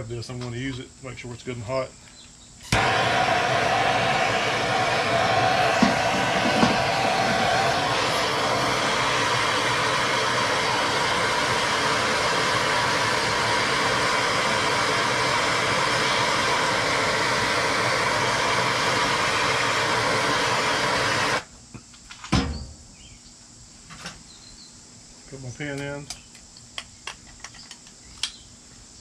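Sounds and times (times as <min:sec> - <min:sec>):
gas torch hissing: 0:02.7 - 0:21.5.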